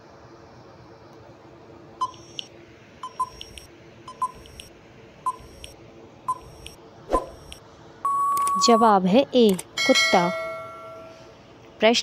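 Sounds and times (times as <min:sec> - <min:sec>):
faint steady hum: 0:00.0 - 0:12.0
short click-beep: 0:07.4 - 0:08.8.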